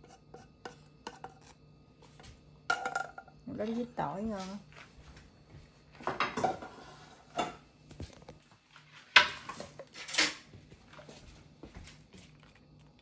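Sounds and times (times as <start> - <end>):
dishes and utensils clattering: 2.7 - 3.3, 6.0 - 7.6.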